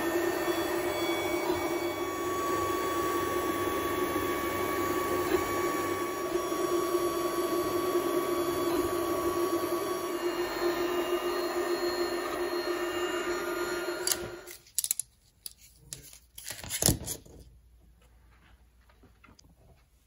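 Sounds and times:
stepper motors whining: 0.0 - 14.6.

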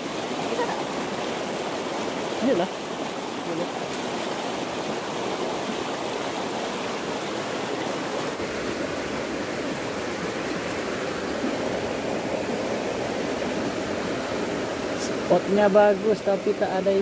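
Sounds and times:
stream flowing over rocks: 0.0 - 17.0.

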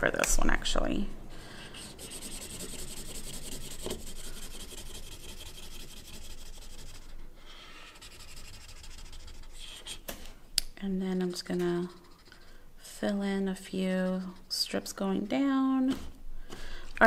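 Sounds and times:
marker scrubbing on paper: 1.6 - 7.2, 7.8 - 10.0, 11.6 - 12.6, 13.7 - 15.0.

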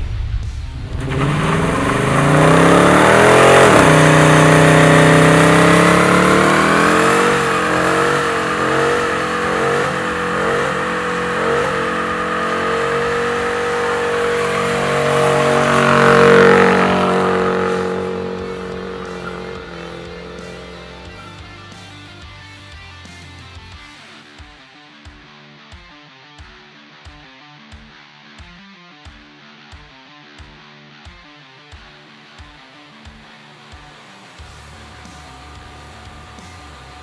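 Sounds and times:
car engine revving hard: 0.7 - 22.2, 34.4 - 37.0.

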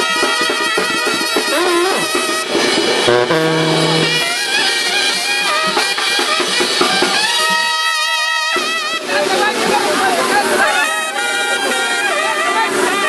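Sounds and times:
brass band playing: 2.0 - 5.6.

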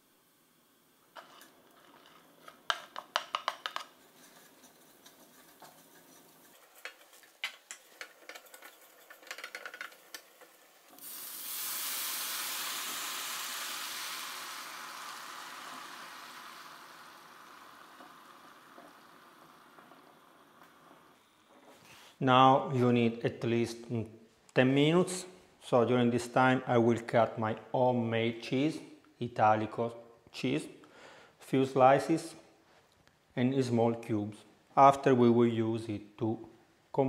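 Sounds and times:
broth sizzling in hot pan: 0.0 - 21.5
spatula scraping a pan: 4.0 - 10.1.

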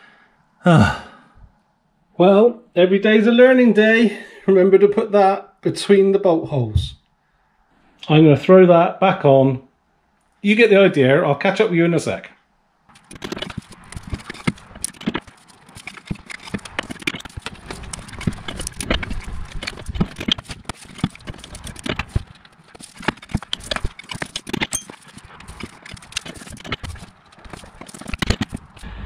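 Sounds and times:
tools knocking and clanking on metal: 12.9 - 28.8.

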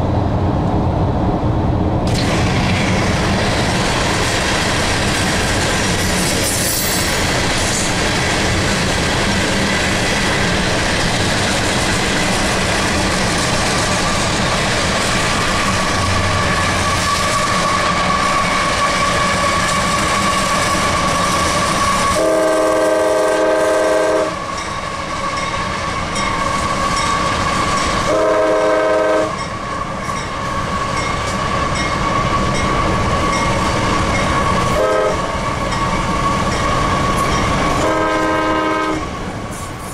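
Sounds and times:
train wheels on rails: 0.0 - 39.9
locomotive air horn blasts: 21.9 - 24.5, 28.1 - 29.4, 34.7 - 35.3, 37.8 - 39.1.

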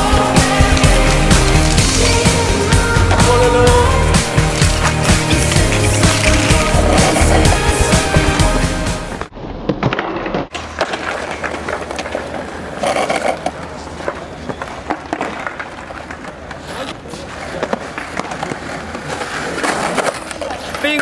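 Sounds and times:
background music: 0.0 - 9.3
skateboard wheels rolling on concrete: 0.0 - 21.0
skateboard clacks: 9.8 - 21.0.

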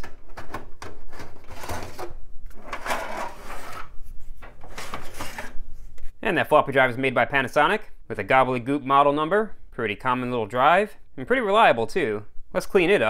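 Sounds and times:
metal drives scraping out of bays: 1.0 - 3.9.

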